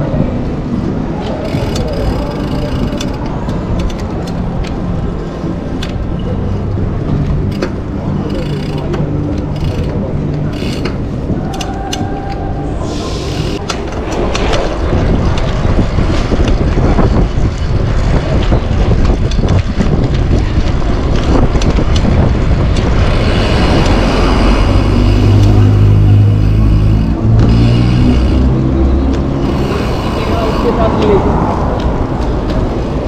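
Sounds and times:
traffic engine hum: 0:00.0 - 0:33.0
wind buffeting microphone: 0:09.0 - 0:33.0
tyres rumbling over paving: 0:12.3 - 0:33.0.

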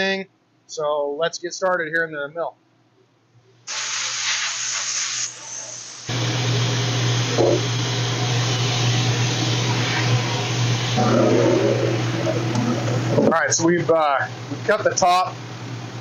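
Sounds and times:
milling machine running: 0:06.1 - 0:13.2.

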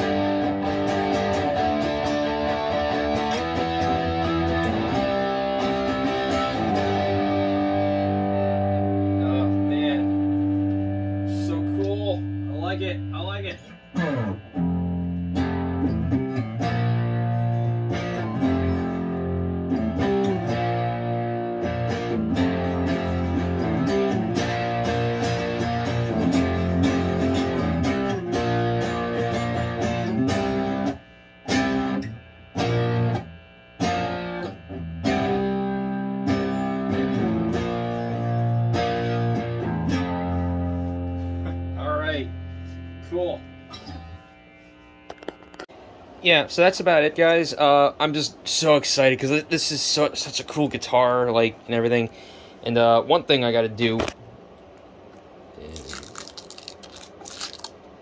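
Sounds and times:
electric guitar strummed chords: 0:00.0 - 0:45.7.

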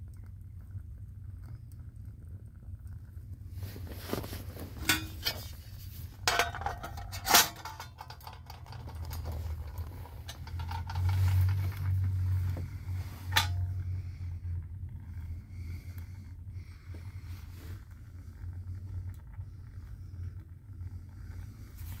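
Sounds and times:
low steady hum: 0:00.0 - 0:22.0
metal tin clinking and knocking: 0:04.8 - 0:12.1, 0:13.2 - 0:13.8.

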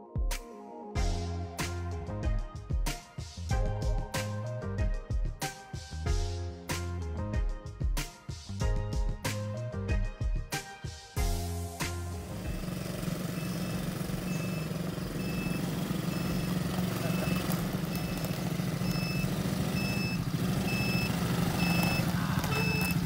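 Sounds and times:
atv engines running: 0:11.8 - 0:23.0
short high beep: 0:18.9 - 0:23.0.

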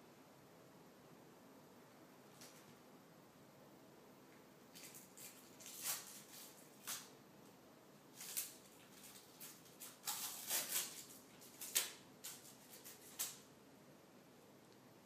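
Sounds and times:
tape ripping off wood: 0:08.2 - 0:13.4.

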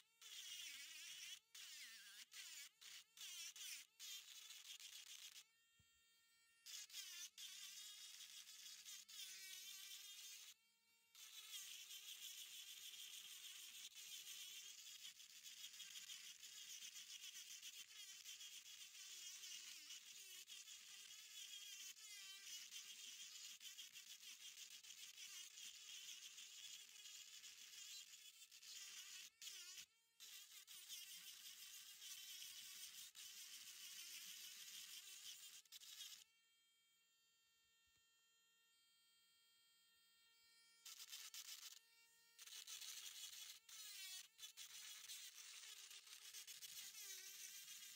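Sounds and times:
rotary tool grinding rock: 0:06.7 - 0:10.6, 0:11.2 - 0:36.3, 0:40.9 - 0:41.8, 0:42.4 - 0:47.9.

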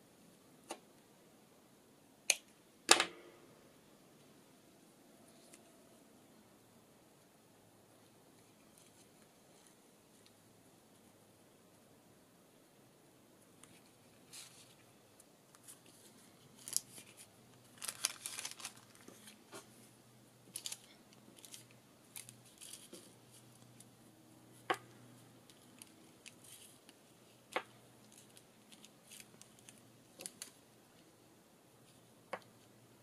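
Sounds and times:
twine and paper tag rustling: 0:13.6 - 0:14.9, 0:15.5 - 0:19.7, 0:20.5 - 0:23.9, 0:25.4 - 0:30.6.

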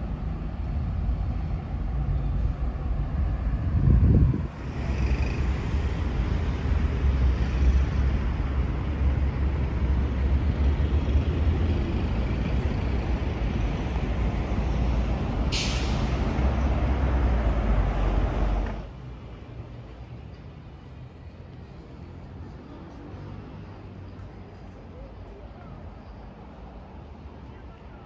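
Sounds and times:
passing traffic rumble: 0:00.0 - 0:28.0
air brake hiss: 0:15.5 - 0:16.2.

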